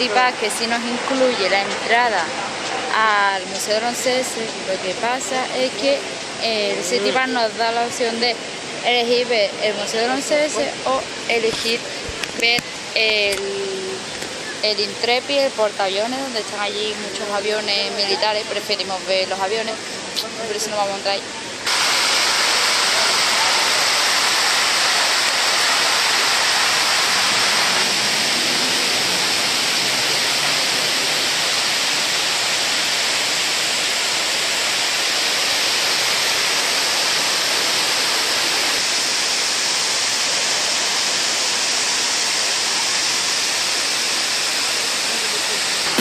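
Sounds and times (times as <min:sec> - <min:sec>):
water pouring down walls: 0:21.6 - 0:46.0.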